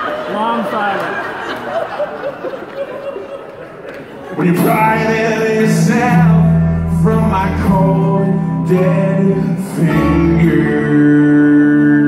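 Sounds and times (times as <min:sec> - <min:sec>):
acoustic guitar strumming: 0:04.4 - 0:12.0
man singing: 0:04.4 - 0:12.0.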